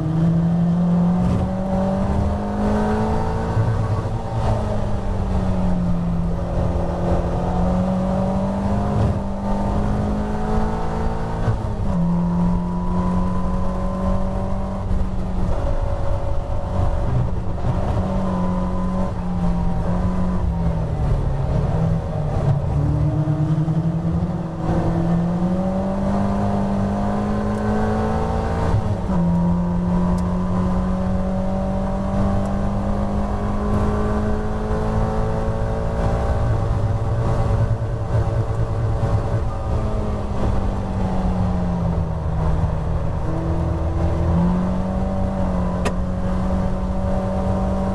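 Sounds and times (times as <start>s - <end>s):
car engine running hard: 0.0s - 47.9s.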